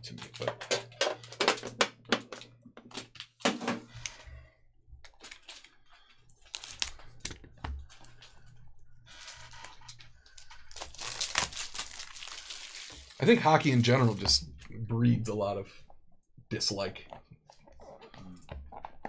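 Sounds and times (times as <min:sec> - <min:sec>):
plastic film crinkling: 0:06.4 - 0:07.3, 0:09.2 - 0:14.4.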